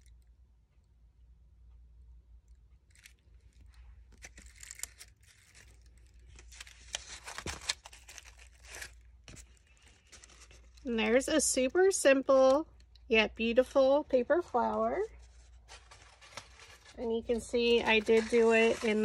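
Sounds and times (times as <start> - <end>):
paper rustling and crinkling: 2.9 - 11.2, 14.3 - 19.0.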